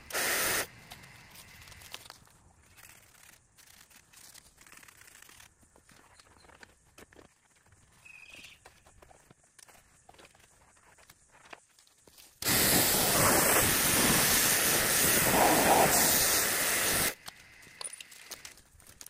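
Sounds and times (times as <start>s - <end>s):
pressure washer spraying metal: 0.1s - 0.7s, 12.4s - 17.2s.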